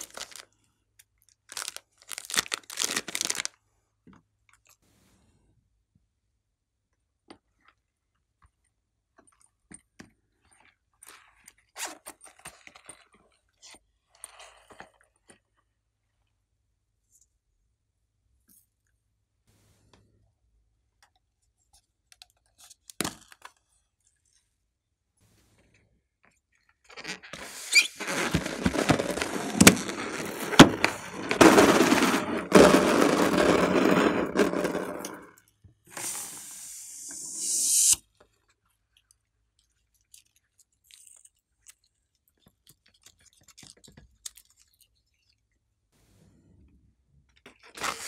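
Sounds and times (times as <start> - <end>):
balloon rubbing and squeaking: 27.0 - 34.5, 36.0 - 38.0
air hissing from balloon: 27.4 - 28.4, 35.9 - 38.0.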